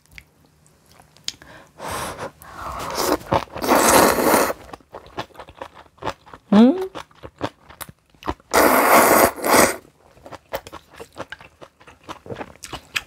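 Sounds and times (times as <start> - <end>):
person slurping noodles: 1.9 - 4.6, 8.5 - 9.8.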